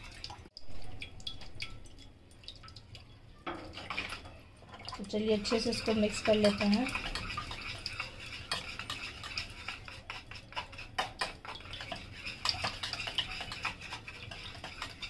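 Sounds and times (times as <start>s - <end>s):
wire whisk scraping a plate: 5.4s - 15.0s.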